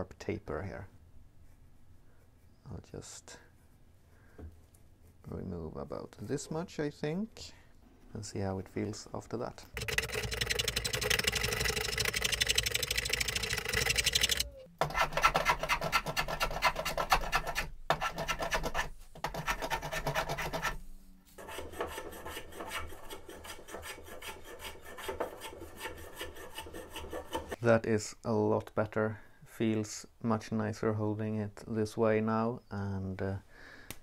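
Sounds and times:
rasp filing wood: 0:09.8 - 0:20.8, 0:21.4 - 0:27.6.

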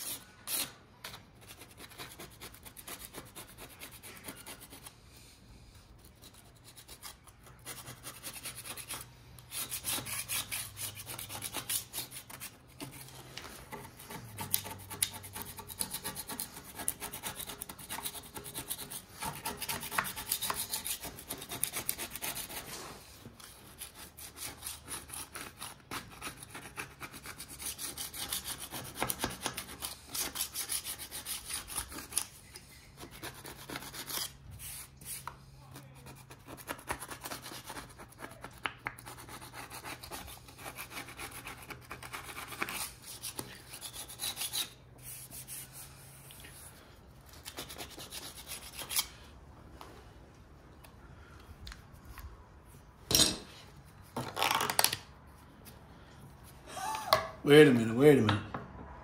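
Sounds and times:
scraper blade rasping on metal: 0:06.3 - 0:22.8.

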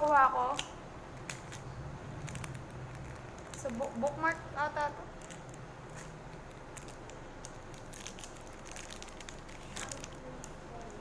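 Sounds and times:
plastic sleeve crinkling: 0:00.0 - 0:11.0.

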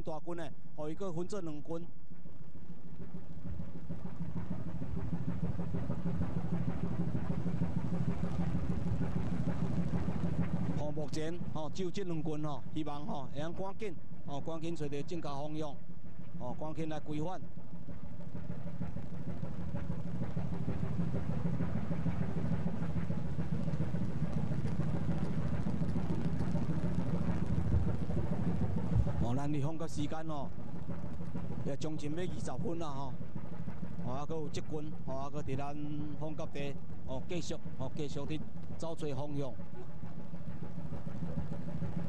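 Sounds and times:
ship engine droning: 0:18.0 - 0:42.0.

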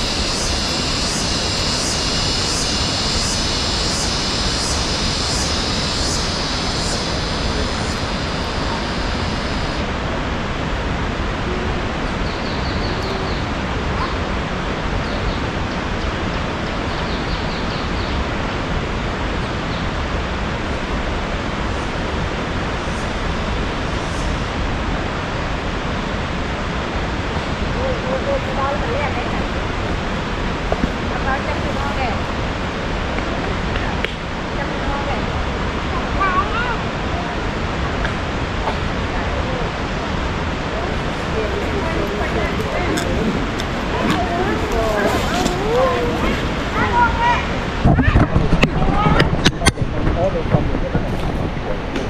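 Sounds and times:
high rhythmic pulsing call: 0:00.0 - 0:09.9
waterfall rushing: 0:00.0 - 0:52.0.

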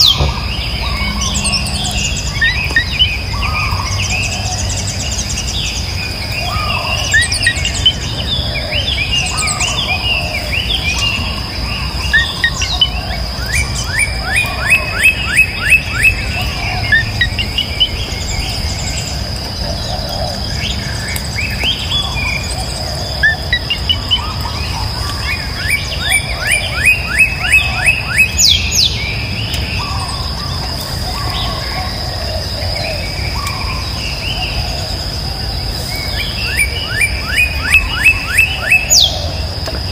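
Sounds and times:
bird trills: 0:00.0 - 0:34.8, 0:35.9 - 0:39.4
birds chirping: 0:00.0 - 0:39.9.

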